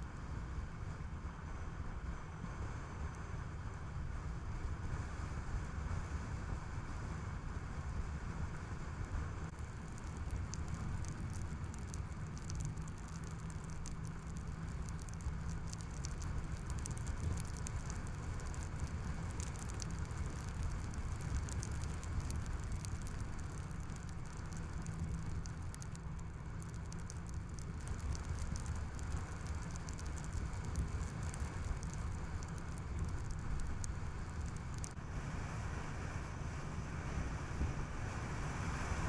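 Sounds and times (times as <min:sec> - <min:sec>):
car driving rumble: 0:00.0 - 0:35.7
light irregular ticking: 0:09.0 - 0:35.0.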